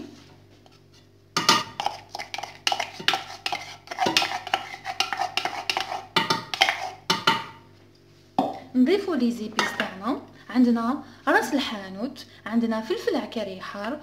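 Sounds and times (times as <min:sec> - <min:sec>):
wooden spoon scraping and knocking: 0:00.0 - 0:07.4.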